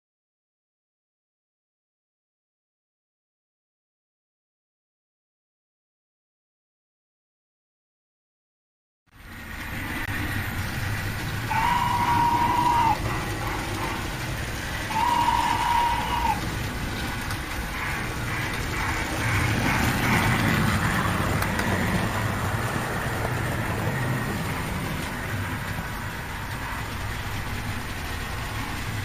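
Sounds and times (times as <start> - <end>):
model locomotive rumbling on track: 9.1 - 29.0
model train whistle toots: 11.5 - 18.5.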